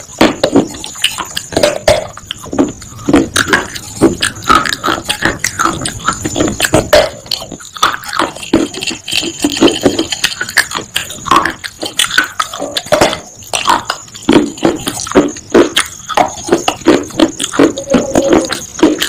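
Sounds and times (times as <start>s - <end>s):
crunching baked clay: 0.0s - 19.0s
wet chewing: 0.0s - 19.0s.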